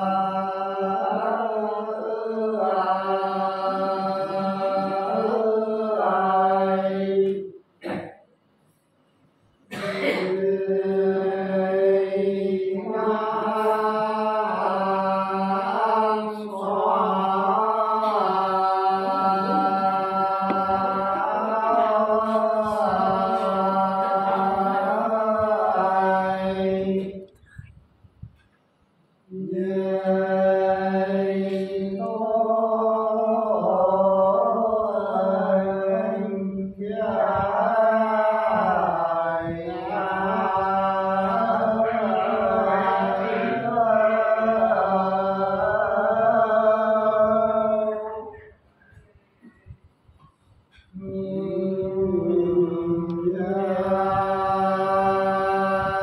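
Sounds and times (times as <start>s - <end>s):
person singing unaccompanied folk song: 9.8s - 27.4s, 29.3s - 48.6s, 50.7s - 56.0s.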